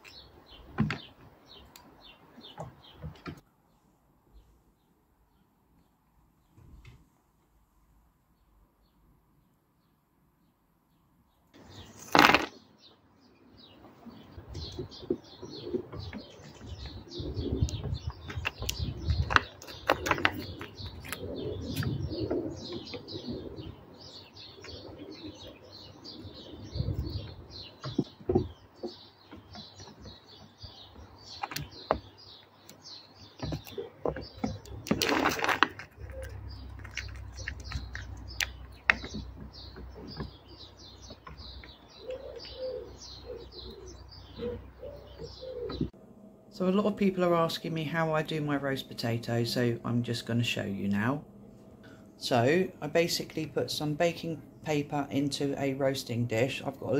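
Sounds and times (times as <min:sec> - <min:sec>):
small birds chirping: 0:00.0 - 0:07.1, 0:08.0 - 0:56.9
squirrel clicking and tapping: 0:27.8 - 0:42.5
rustling: 0:33.4 - 0:41.8.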